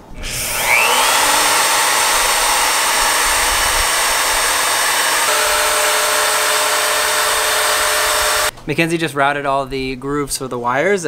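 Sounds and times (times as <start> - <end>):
router high whine: 0.0 - 8.5.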